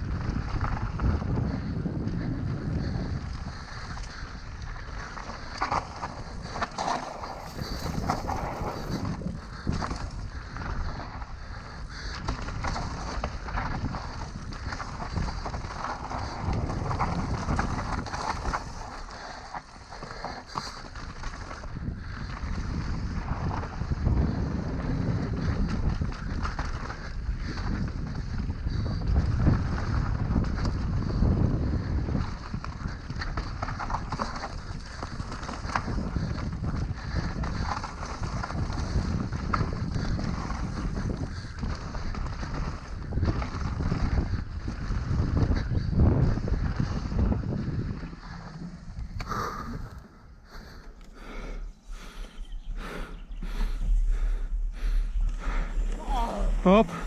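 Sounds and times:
bike rattling and knocking: 0:00.0 - 0:49.8
bike tyres on dirt and leaves: 0:00.0 - 0:57.0
wind rushing over microphone: 0:00.0 - 0:57.0
low rush: 0:49.1 - 0:57.0.

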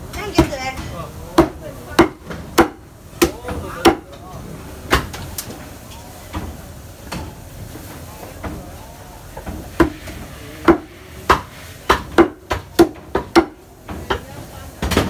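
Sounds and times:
cleaver chopping on wooden block: 0:01.4 - 0:04.0.

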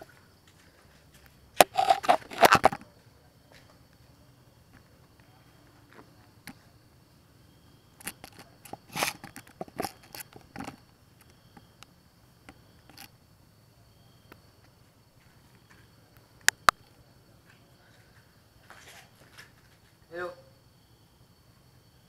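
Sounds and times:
faint steady hiss: 0:00.0 - 0:22.0
camera handling crackles and clicks: 0:01.6 - 0:02.8.

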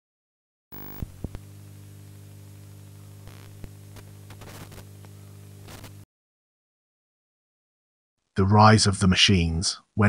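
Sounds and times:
electrical hum: 0:00.7 - 0:06.0
crackling bursts: 0:00.7 - 0:06.1
static hiss: 0:00.7 - 0:06.1
sharp pops: 0:00.8 - 0:02.2, 0:03.2 - 0:06.0.

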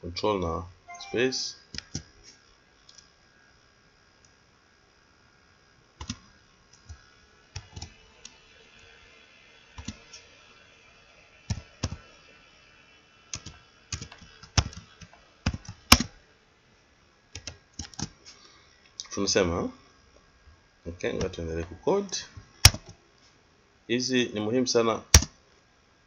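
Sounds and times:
computer keyboard keystrokes: 0:06.0 - 0:06.2, 0:11.5 - 0:12.0, 0:13.4 - 0:14.9, 0:15.5 - 0:16.1, 0:17.4 - 0:18.1.

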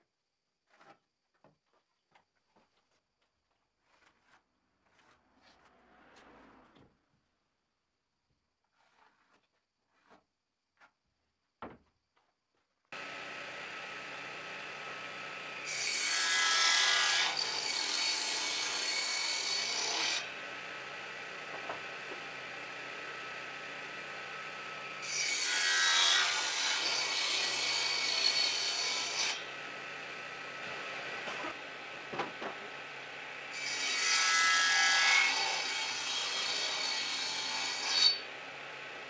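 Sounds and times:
power tool running: 0:13.0 - 0:16.6
power tool cutting wood: 0:13.0 - 0:39.0.

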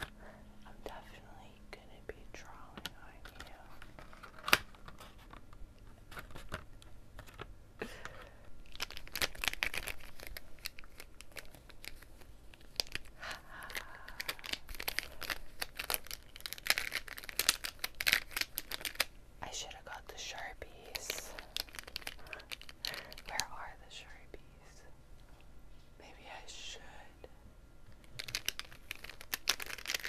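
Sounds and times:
crinkly rustling: 0:00.0 - 0:25.9, 0:27.8 - 0:30.0.

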